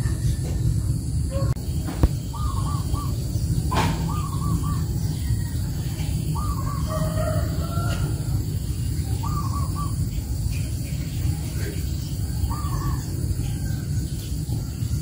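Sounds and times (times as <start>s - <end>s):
bird calling: 1.3s - 15.0s.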